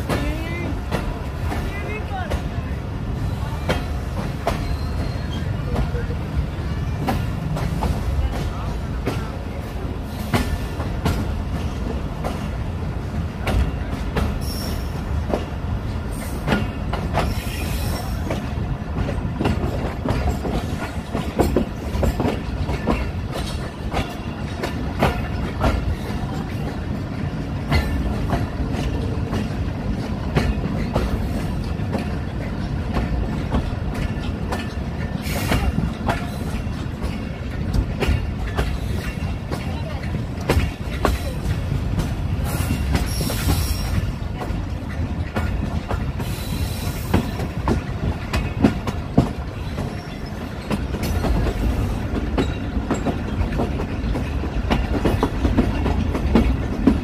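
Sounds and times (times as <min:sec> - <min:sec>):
train low rumble: 0:00.0 - 0:57.0
high wheel squeals: 0:04.5 - 0:05.7.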